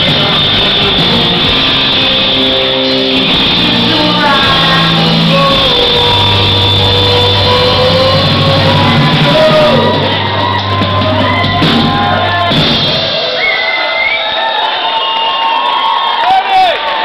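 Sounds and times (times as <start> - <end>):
electric guitar: 0.0 - 13.2
bass guitar: 0.0 - 13.4
drum kit: 0.0 - 14.1
person singing into a microphone: 3.6 - 10.4.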